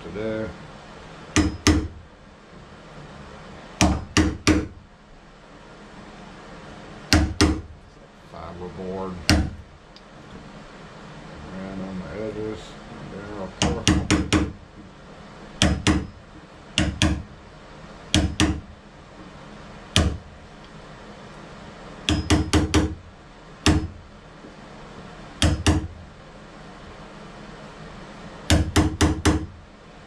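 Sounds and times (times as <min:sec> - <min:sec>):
hammer tapping wood chisel: 0:01.4 - 0:01.9, 0:03.8 - 0:04.7, 0:07.1 - 0:07.6, 0:13.6 - 0:14.9, 0:15.6 - 0:16.1, 0:16.8 - 0:17.2, 0:18.1 - 0:18.6, 0:20.0 - 0:20.2, 0:22.1 - 0:23.0, 0:23.6 - 0:24.0, 0:25.4 - 0:25.9, 0:28.5 - 0:29.5.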